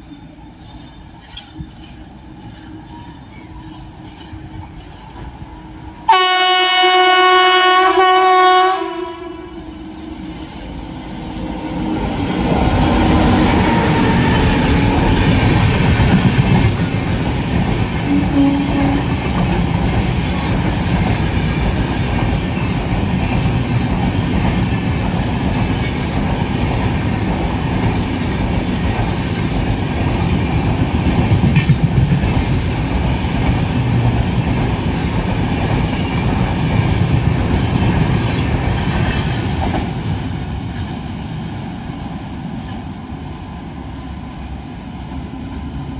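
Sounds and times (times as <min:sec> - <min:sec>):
train wheels running on rails: 0:00.0 - 0:08.4, 0:09.2 - 0:45.9.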